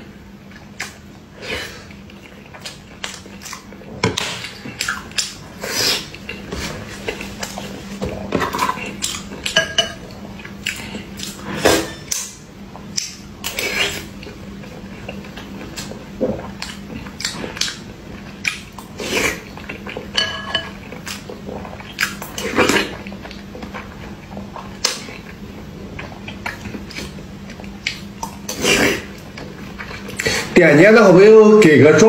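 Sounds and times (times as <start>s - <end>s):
wet chewing and mouth smacks: 1.8s - 7.6s, 12.8s - 20.1s, 23.1s - 28.6s.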